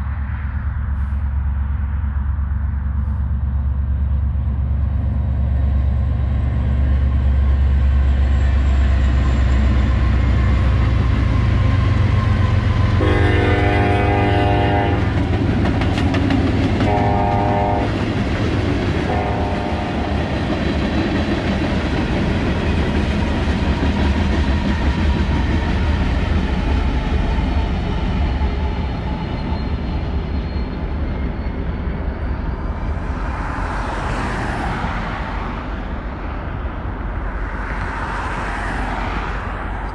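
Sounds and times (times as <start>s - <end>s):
diesel locomotives running: 0.0s - 39.9s
freight train rumbling on rails: 0.0s - 39.9s
rushing sound of passing train: 0.0s - 39.9s
train horn blasts: 13.0s - 15.2s, 16.8s - 18.1s, 18.9s - 20.4s.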